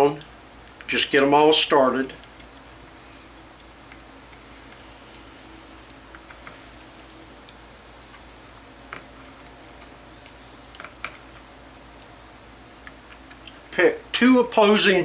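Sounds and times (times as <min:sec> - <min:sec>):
steady hiss: 0:00.0 - 0:15.0
hex key metal clicks: 0:09.8 - 0:11.3.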